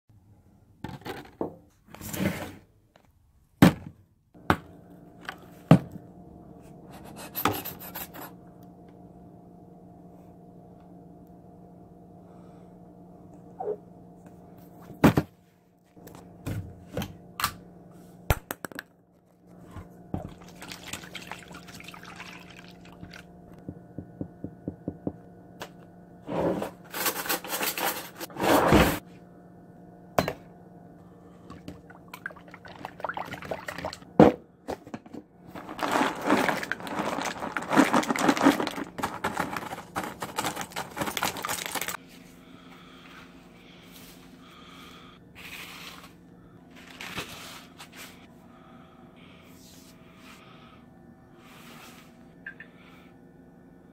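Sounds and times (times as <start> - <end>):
milk pouring and splashing: 20.2 - 23.3, 31.6 - 34.0
cereal pouring into metal pan: 35.6 - 42.0.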